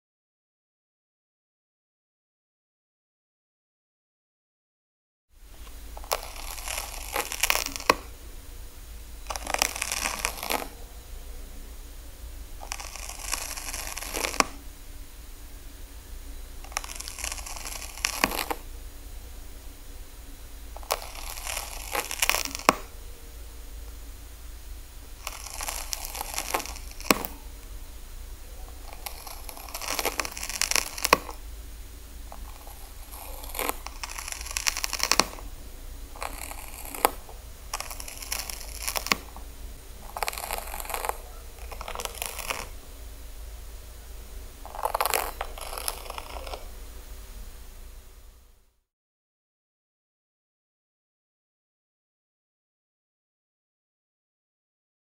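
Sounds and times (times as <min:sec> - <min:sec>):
low hum: 0:05.4 - 0:48.8
snail crunching carrot: 0:05.6 - 0:11.1, 0:12.3 - 0:15.1, 0:16.4 - 0:19.0, 0:19.7 - 0:47.1.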